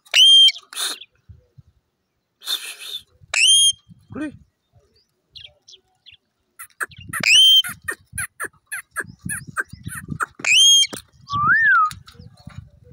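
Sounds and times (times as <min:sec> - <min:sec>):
parakeet chirping: 0:06.6 - 0:10.8
parakeet screeching: 0:06.6 - 0:10.8.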